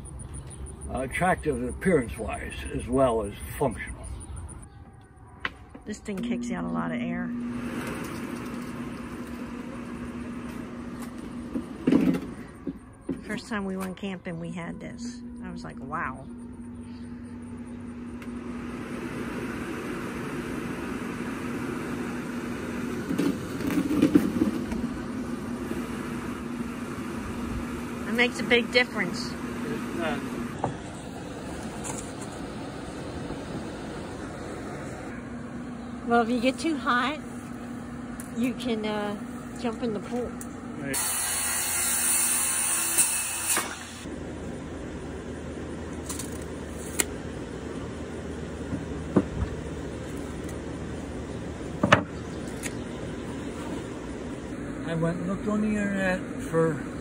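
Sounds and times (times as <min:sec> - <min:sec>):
floor blower running: 0:06.1 - 0:14.0, 0:15.0 - 0:52.7
circular saw cutting wood: 0:40.9 - 0:44.1.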